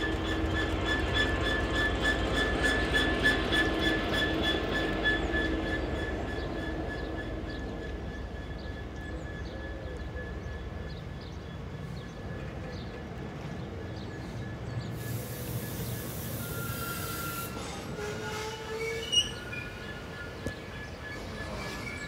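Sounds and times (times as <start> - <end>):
diesel locomotive engine: 0.0 - 22.0
freight wagons rumbling on rails: 0.0 - 22.0
high hiss: 15.0 - 17.8.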